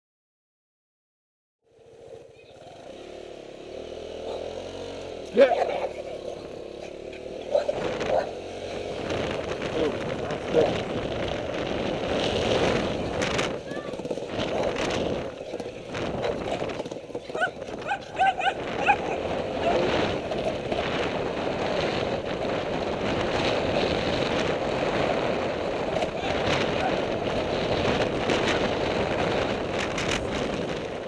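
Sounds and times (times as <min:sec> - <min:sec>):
motorcycle riding: 0:01.6 - 0:31.0
wind noise: 0:06.4 - 0:31.0
dog barking: 0:06.9 - 0:08.5, 0:17.3 - 0:19.9.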